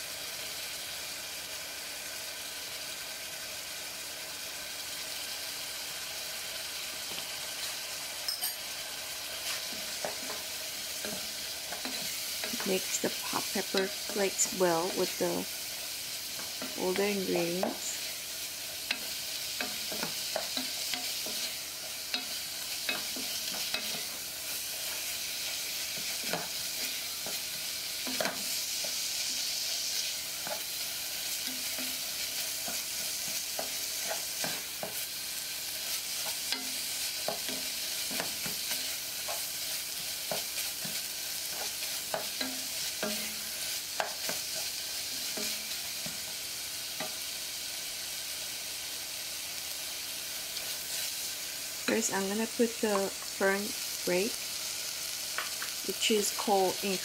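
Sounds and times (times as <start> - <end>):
meat sizzling in a pot: 0.0 - 57.0
spoon tapping pot: 8.3 - 8.6.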